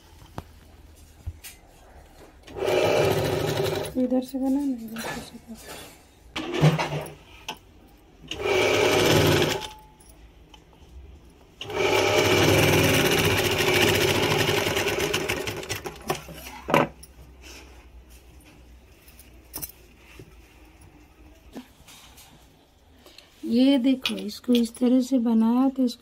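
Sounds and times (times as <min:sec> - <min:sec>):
sewing machine stitching: 0:02.5 - 0:04.0, 0:08.3 - 0:09.8, 0:11.6 - 0:16.2.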